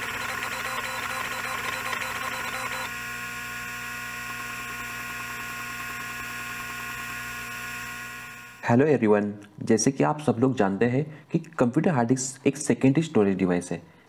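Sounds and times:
hard disk spindle whine: 0.0s - 8.6s.

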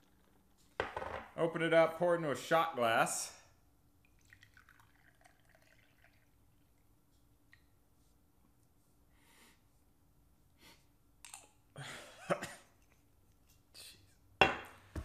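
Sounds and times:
bottle knocking on table: 0.8s - 1.3s, 14.4s - 14.7s
man breathing: 9.1s - 9.7s.

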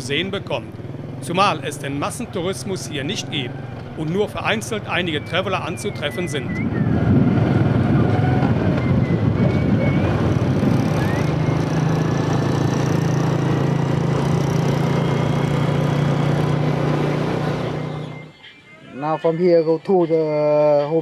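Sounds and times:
small motorbike engine running: 7.8s - 18.1s.

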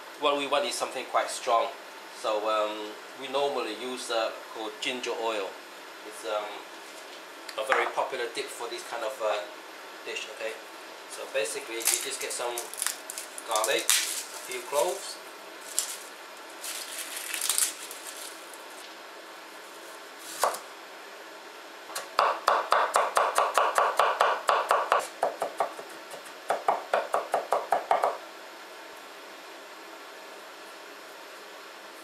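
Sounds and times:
cleaver chopping on wooden board: 21.9s - 28.2s.

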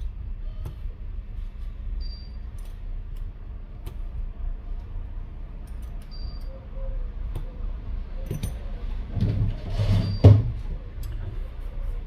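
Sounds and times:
steady low hum: 0.0s - 12.0s
handling clicks and rustling: 7.2s - 9.7s.

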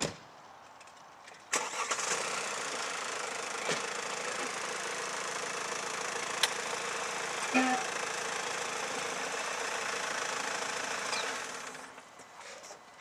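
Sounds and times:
car engine starting and idling: 1.5s - 13.0s.

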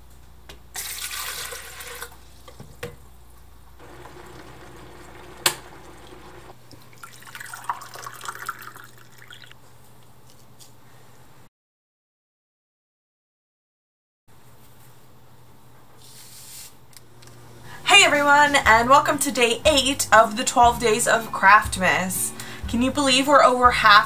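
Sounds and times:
water pouring into ceramic mug: 0.8s - 2.1s, 3.8s - 9.5s
water pouring into kettle: 0.8s - 2.2s, 3.8s - 9.5s.

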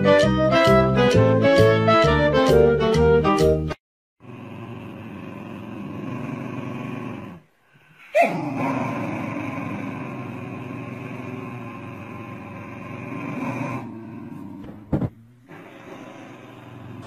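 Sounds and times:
dogs growling: 4.2s - 17.0s.

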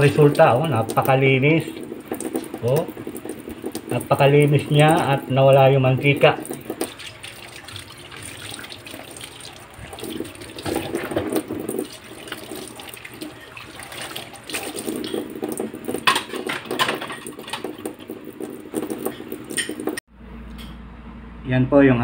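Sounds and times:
tap water running into sink: 0.0s - 20.0s
dishware clinking: 14.6s - 18.2s, 18.8s - 20.0s.

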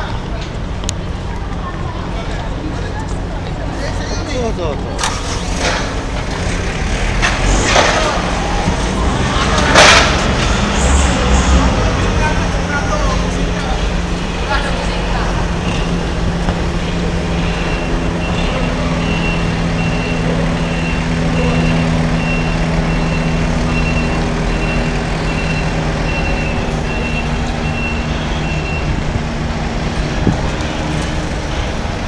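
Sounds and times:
reversing alarm beeping: 15.1s - 29.0s.

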